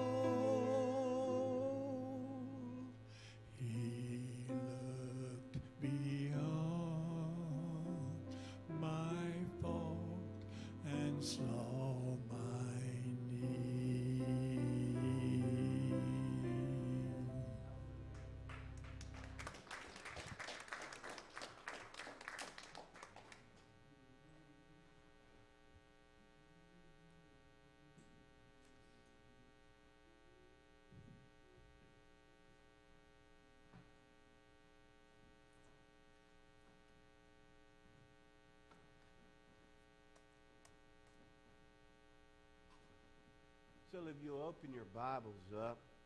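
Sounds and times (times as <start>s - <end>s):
electrical mains hum: 0.0s - 46.0s
hand clapping: 18.2s - 23.4s.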